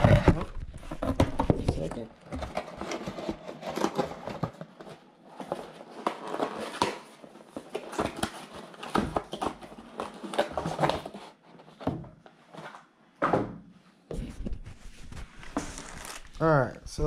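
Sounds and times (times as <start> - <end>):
plastic packaging crinkling: 15.4 - 16.5.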